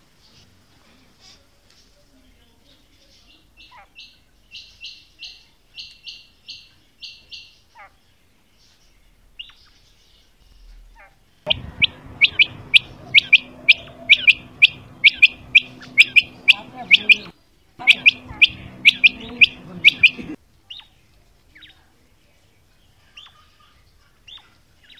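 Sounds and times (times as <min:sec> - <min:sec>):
low hum: 0:11.5 - 0:20.4
quail calling short high notes: 0:11.5 - 0:20.4
sharp bird calls: 0:11.5 - 0:20.9.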